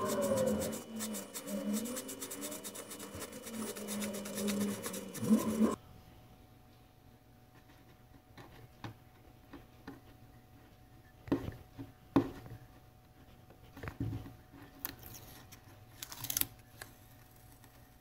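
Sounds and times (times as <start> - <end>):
masking tape rasping: 0.0 - 5.8.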